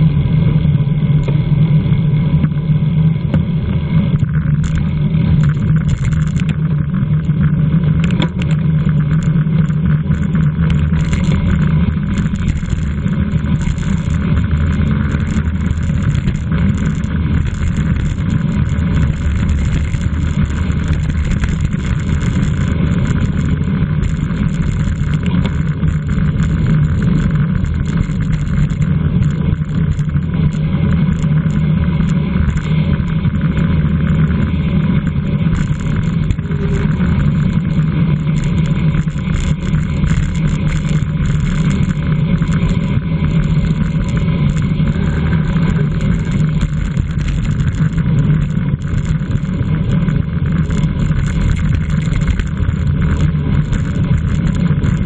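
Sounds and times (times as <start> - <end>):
bicycle road noise: 0.0 - 55.0.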